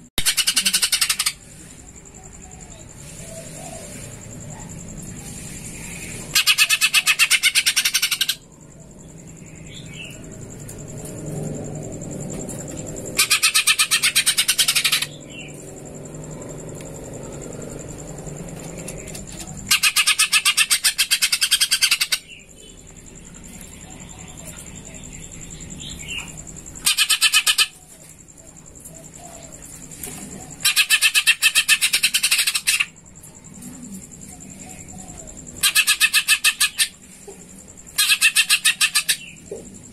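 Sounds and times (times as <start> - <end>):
bird chattering song: 0.0 - 1.4, 5.6 - 8.6, 13.2 - 15.8, 18.7 - 22.8, 23.6 - 33.0, 34.2 - 37.0, 37.8 - 39.7
faint high whine: 8.1 - 26.9.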